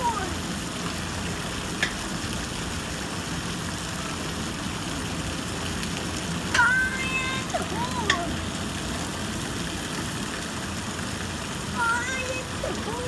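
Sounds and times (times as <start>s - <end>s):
low rumble with water hiss: 0.0s - 13.0s
child's high call: 11.8s - 13.0s.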